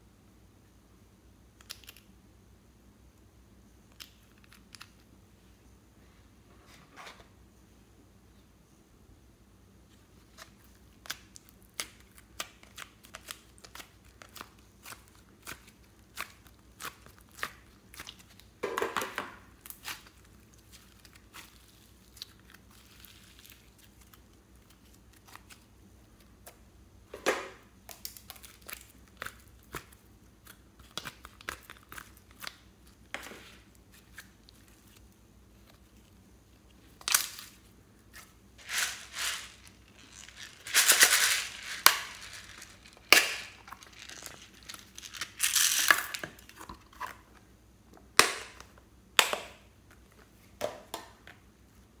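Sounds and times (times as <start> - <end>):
slime popping and squishing: 11.0 - 18.5.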